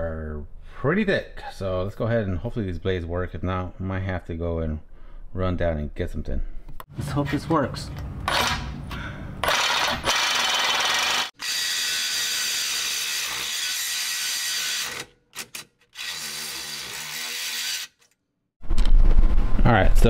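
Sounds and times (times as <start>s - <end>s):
power saw cutting steel: 9.4s - 18.1s.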